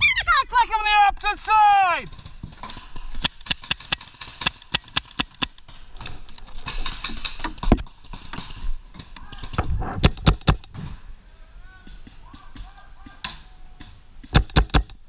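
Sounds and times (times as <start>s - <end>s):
paintball marker shots: 3.2s - 5.6s.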